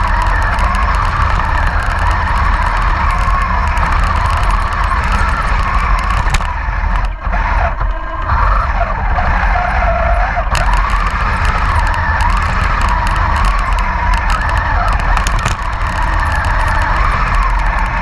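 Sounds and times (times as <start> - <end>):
electric motors whining: 0.0 - 18.0
steady low rumble: 0.0 - 18.0.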